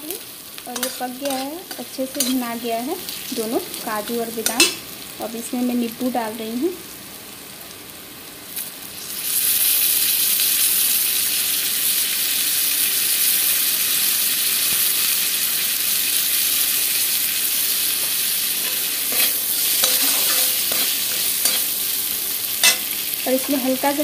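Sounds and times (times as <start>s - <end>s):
nuts sizzling in hot oil: 0.0s - 24.0s
metal spatula scraping pan: 0.8s - 2.4s, 18.0s - 21.8s, 22.6s - 23.6s.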